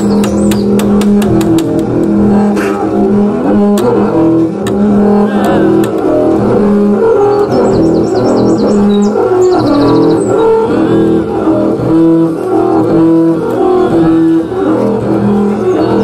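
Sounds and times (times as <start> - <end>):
sharp clicks: 0.0 - 2.2, 4.6 - 6.2
bowed double bass: 0.0 - 16.0.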